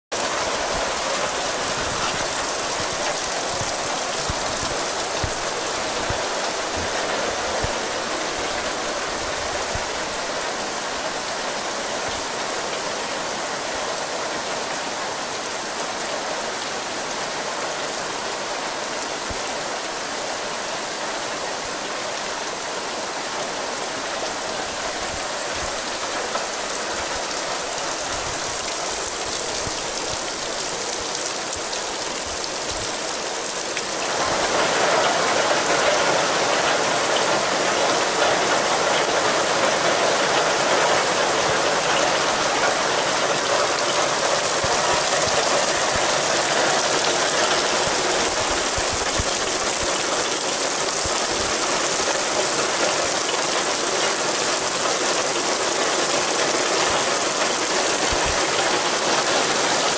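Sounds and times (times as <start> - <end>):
raindrop impacts: 0.1 - 8.8, 25.5 - 59.9
rain hissing: 0.1 - 59.9.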